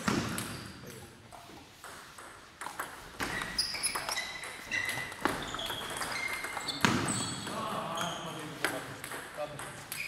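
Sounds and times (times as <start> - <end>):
table tennis ball hits: 1.8 - 7.6, 8.6 - 10.0.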